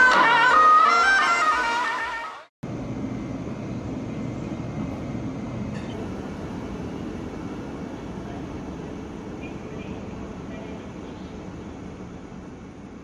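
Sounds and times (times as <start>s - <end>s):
train running rumble and hiss: 2.6s - 13.0s.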